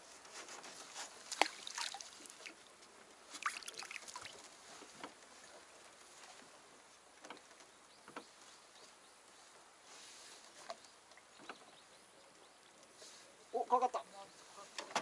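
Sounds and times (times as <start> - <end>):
knocks and clicks on a boat: 7.2 - 8.4, 11.4 - 11.8, 14.8 - 15.0.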